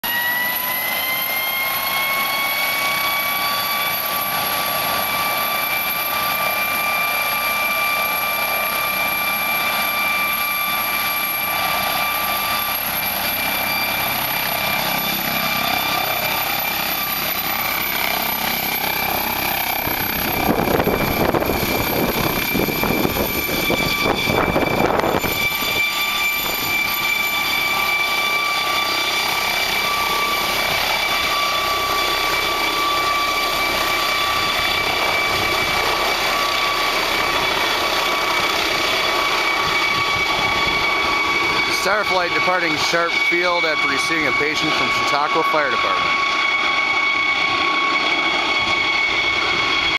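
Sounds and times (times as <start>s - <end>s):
helicopter rotor noise: 0.0s - 49.9s
helicopter turbine whine: 0.0s - 49.9s.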